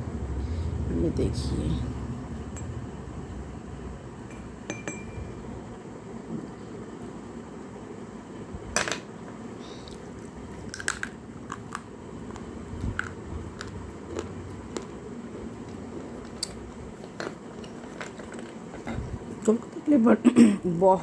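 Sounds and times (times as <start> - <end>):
low chewing grind: 11.4 - 19.1.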